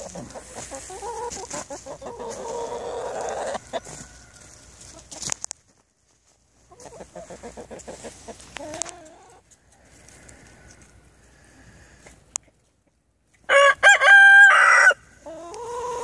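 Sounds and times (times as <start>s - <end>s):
chickens clucking: 0.0s - 13.6s, 15.0s - 16.0s.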